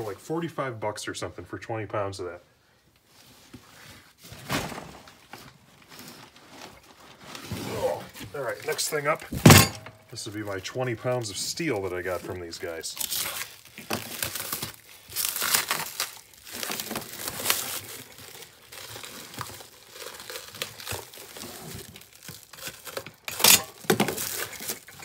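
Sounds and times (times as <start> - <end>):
plastic wrap tearing and crinkling: 4.4 - 9.4, 10.2 - 25.0.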